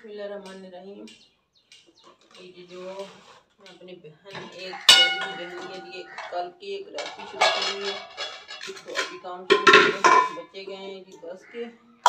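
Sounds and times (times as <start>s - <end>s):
steel pots clinking and knocking: 4.3s - 10.6s
pot lid clanging: 4.4s - 10.5s.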